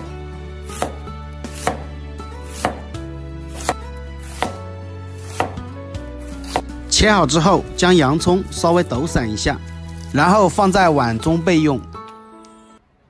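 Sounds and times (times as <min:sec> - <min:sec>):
soft background music: 0:00.0 - 0:13.0
cleaver chopping on wooden board: 0:00.7 - 0:04.6, 0:05.2 - 0:05.7, 0:06.4 - 0:06.7.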